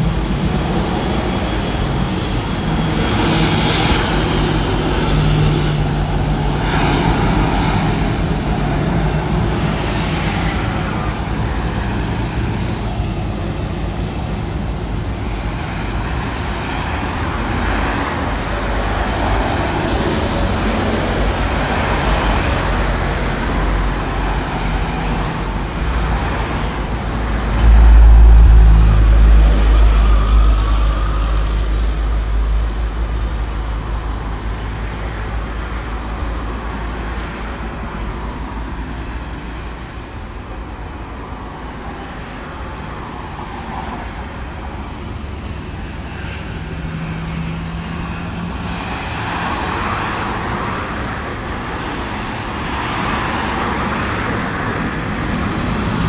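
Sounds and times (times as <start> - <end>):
cars driving by: 0.0 - 56.0
steady traffic background: 0.0 - 56.0
loud low rumble: 27.2 - 34.5.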